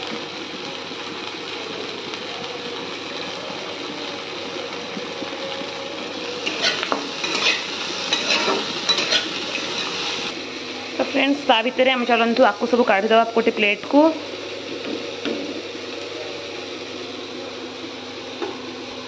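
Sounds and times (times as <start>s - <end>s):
vegetables sizzling in a pan: 0.0s - 19.0s
metal spatula scraping a pan: 6.4s - 10.0s.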